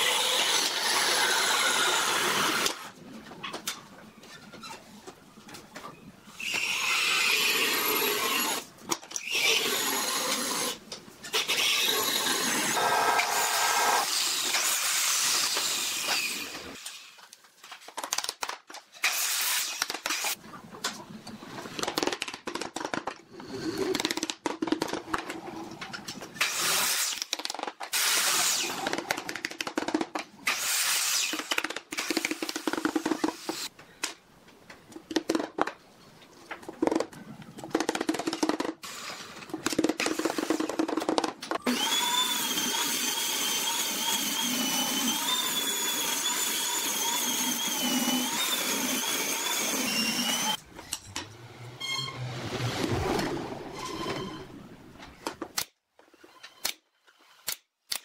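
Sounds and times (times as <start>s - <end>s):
power tool running: 41.6s - 50.6s.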